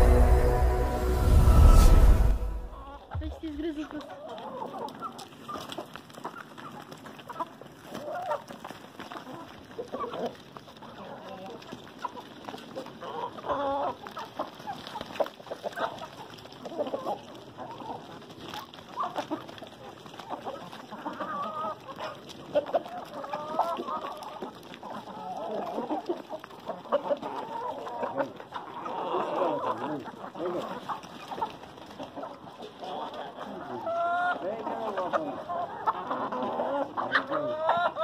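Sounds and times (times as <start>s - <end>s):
hens clucking: 2.8s - 38.0s.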